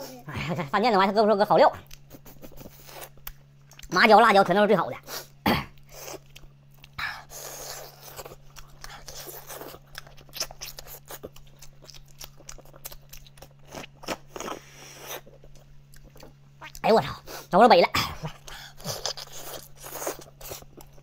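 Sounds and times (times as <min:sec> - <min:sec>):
wet chewing and lip smacks: 0:01.8 - 0:03.9, 0:05.8 - 0:07.0, 0:07.8 - 0:14.6.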